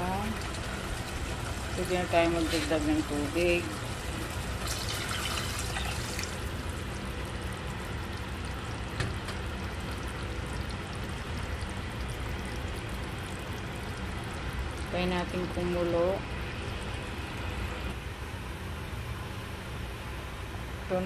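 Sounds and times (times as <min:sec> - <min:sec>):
water splashing into a pot: 0:00.0 - 0:14.0.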